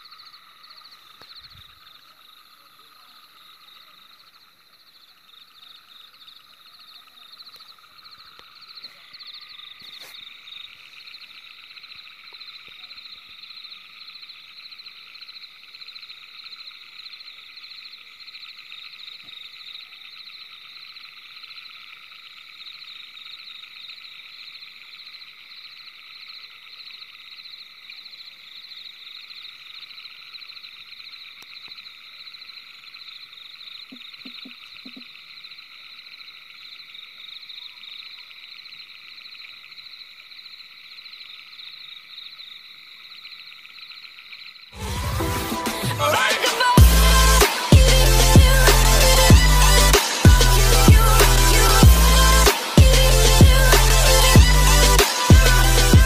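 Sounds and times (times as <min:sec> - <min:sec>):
frogs trilling: 0:00.0 - 0:44.8.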